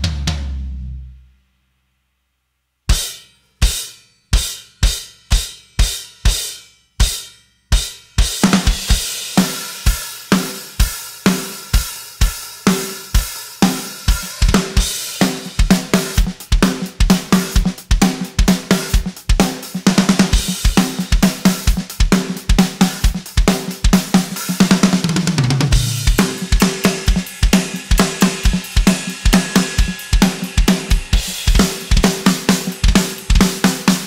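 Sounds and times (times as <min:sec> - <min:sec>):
drum kit playing: 0:00.0 - 0:00.9, 0:02.9 - 0:34.0
cymbals crashing: 0:03.0 - 0:17.5, 0:25.7 - 0:34.0.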